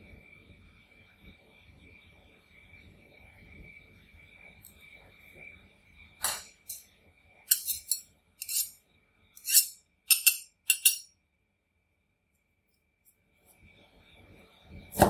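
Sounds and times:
steel spatulas clinking: 7.5 - 8.8, 9.4 - 11.1.

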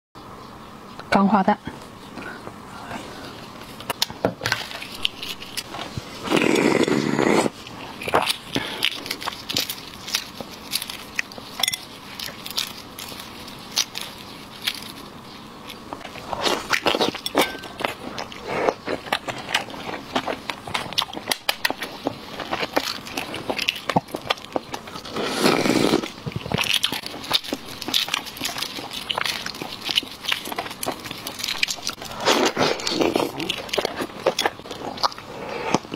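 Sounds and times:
eggshell crackling: 3.5 - 35.9
wet chewing and mouth smacks: 15.7 - 25.1, 25.9 - 35.9.

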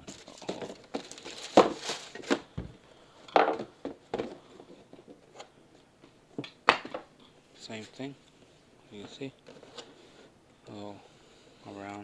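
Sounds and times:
tissue paper and cardboard rustling: 0.0 - 2.5.

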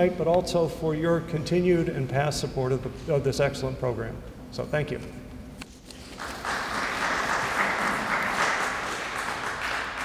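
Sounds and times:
audience applauding: 6.2 - 10.0.

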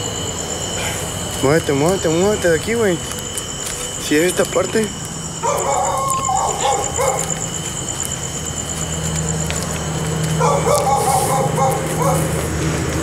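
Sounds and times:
dogs barking and yelping: 5.4 - 13.0.

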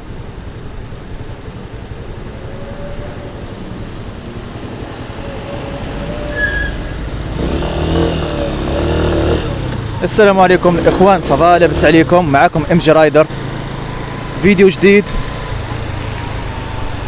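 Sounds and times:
motorcycle engine idling and revving: 0.0 - 17.0.

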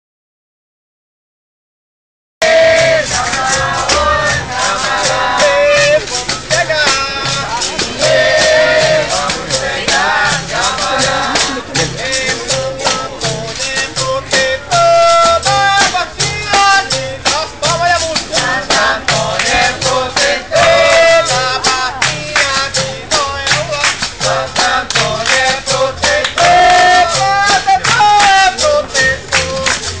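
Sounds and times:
berimbau: 2.4 - 30.0
hand percussion and drum beat: 2.4 - 30.0
shaker rattle: 2.8 - 30.0
person singing: 25.8 - 30.0.

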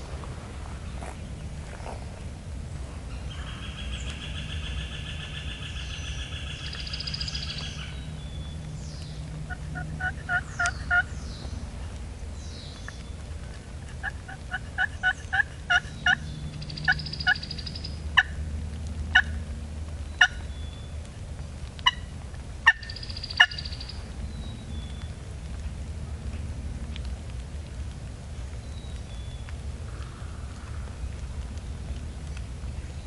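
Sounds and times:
wild turkey calling: 9.4 - 11.2, 13.8 - 18.3, 19.1 - 19.4, 20.2 - 20.5, 21.8 - 22.0, 22.6 - 24.0.

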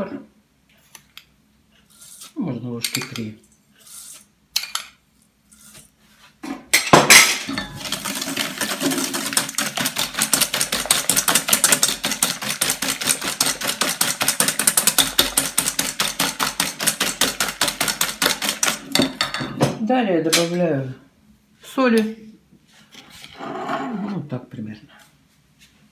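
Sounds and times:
whisk clinking in metal bowl: 7.5 - 19.6.

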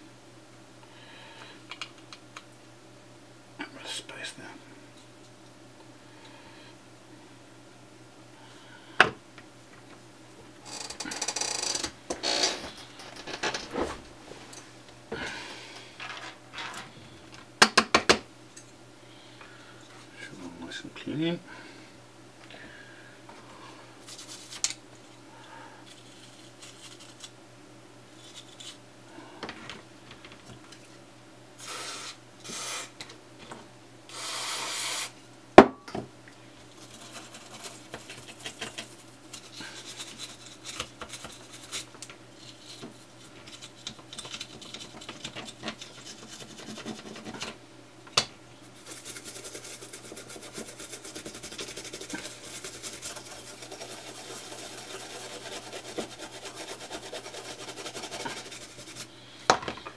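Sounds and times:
toothbrush scrubbing circuit board: 36.8 - 39.0, 48.8 - 59.1.

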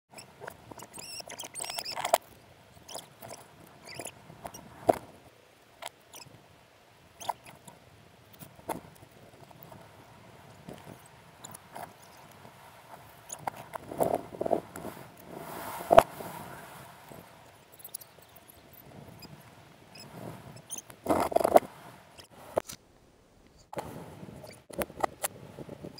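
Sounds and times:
short high squeaks: 0.1 - 2.2, 2.8 - 4.7, 7.2 - 7.6, 13.2 - 13.7, 17.1 - 22.3.

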